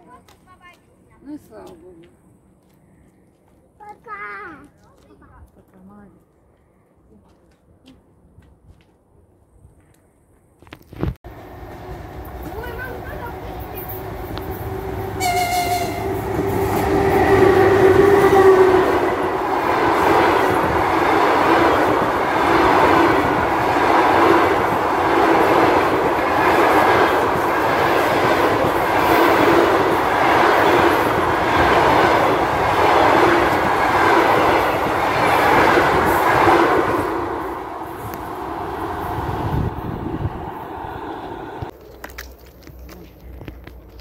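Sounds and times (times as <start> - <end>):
train coaches rushing past: 11.3 - 41.7.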